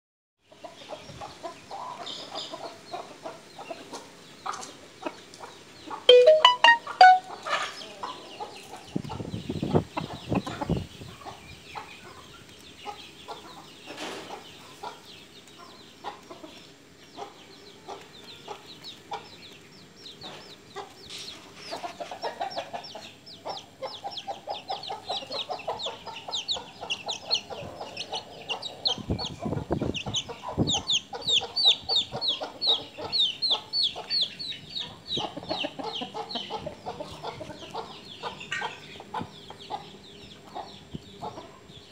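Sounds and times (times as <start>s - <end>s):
short high chirps: 6.1s - 7.3s.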